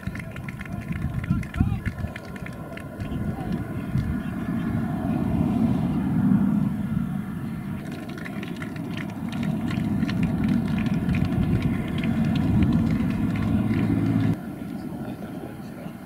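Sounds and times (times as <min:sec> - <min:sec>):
scattered applause: 0:00.0 - 0:03.6, 0:07.8 - 0:14.4
steady low rumble: 0:00.0 - 0:16.0.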